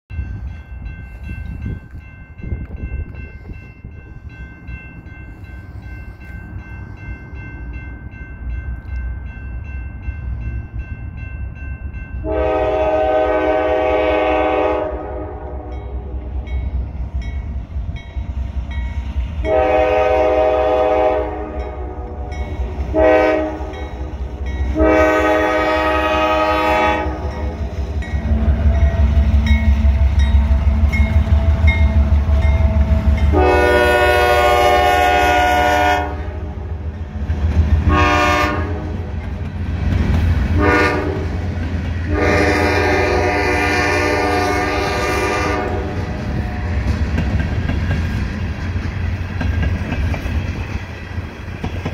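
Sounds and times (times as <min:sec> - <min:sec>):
locomotive engine rumbling: 0:00.1 - 0:51.9
railroad crossing bell ringing: 0:00.1 - 0:51.9
locomotive air horn blasts: 0:12.2 - 0:16.2, 0:19.4 - 0:23.9, 0:24.7 - 0:27.6, 0:33.2 - 0:36.7, 0:37.8 - 0:39.1, 0:40.6 - 0:41.4, 0:42.1 - 0:46.2.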